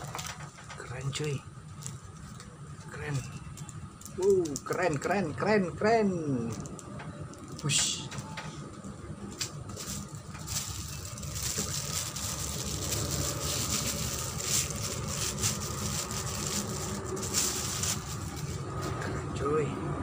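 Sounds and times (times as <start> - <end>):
plastic sleeves crinkling: 1.6 - 4.9, 9.2 - 19.0
steady low rumble: 6.4 - 20.0.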